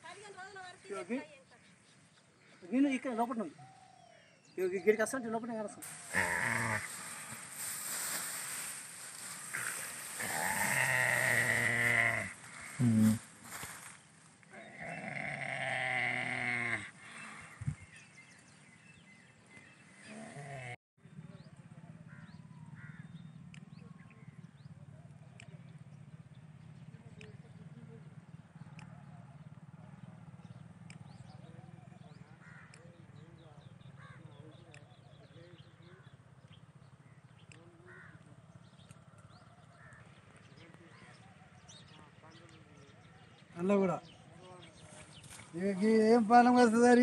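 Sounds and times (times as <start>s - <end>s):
distant animal calls: 5.8s - 13.9s, 14.5s - 17.8s, 28.0s - 42.3s.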